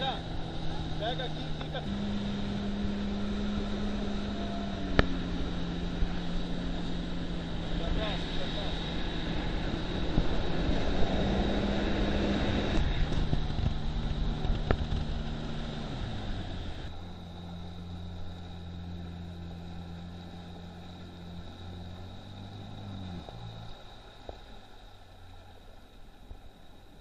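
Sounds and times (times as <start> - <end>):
motorboat engine running: 0.0 - 27.0
water rushing and spray: 0.0 - 27.0.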